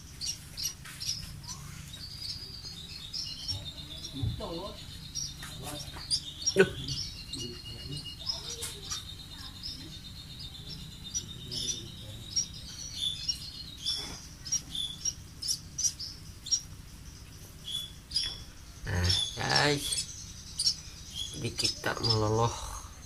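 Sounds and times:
baby bird begging chirps: 0.0s - 23.0s.

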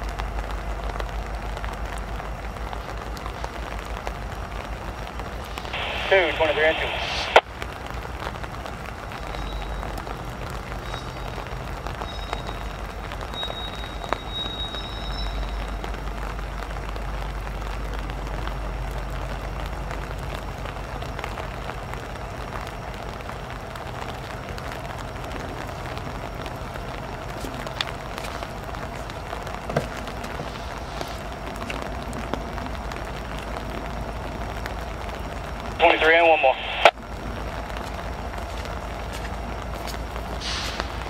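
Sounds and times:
locomotive engines rumbling: 0.0s - 41.0s
rain hiss: 0.0s - 41.0s
faint high squeal: 13.3s - 15.8s.

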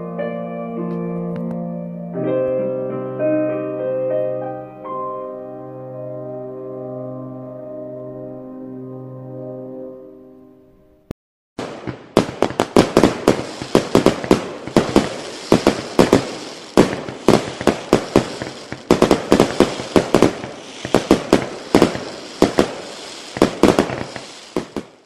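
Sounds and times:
fireworks banging: 11.6s - 25.0s
fireworks crackle: 11.6s - 25.0s.

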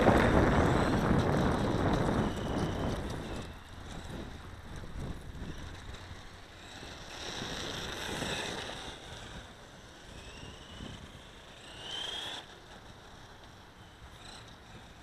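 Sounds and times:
wind rumbling on microphone: 0.0s - 11.8s
electric motor whine: 0.0s - 15.0s.

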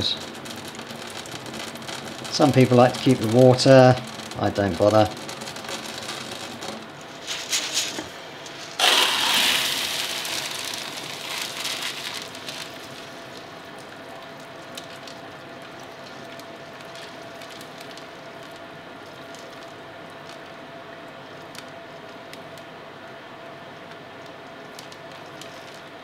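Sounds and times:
water splashing into a sieve: 8.7s - 13.6s.

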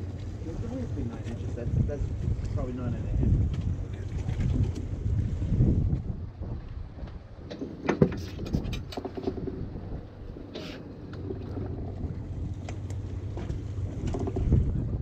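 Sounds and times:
boat noise: 0.0s - 15.0s
wind rumble: 0.0s - 15.0s
knocks and clicks: 7.0s - 9.6s.

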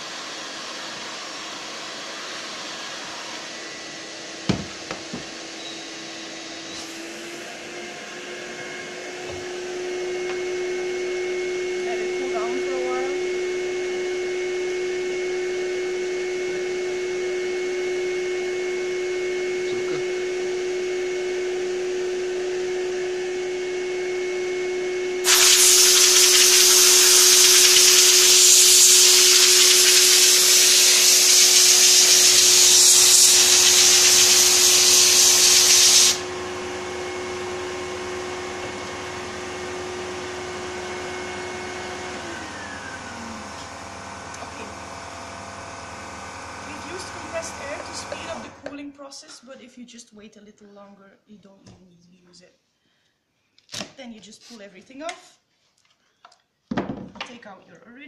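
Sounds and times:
vacuum cleaner whining: 0.0s - 48.8s
compressed air hiss: 25.2s - 36.3s.

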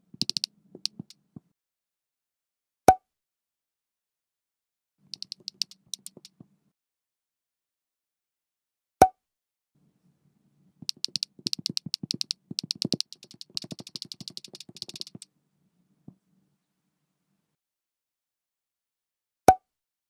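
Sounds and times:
rapid keyboard typing: 0.2s - 1.1s, 10.9s - 15.2s.

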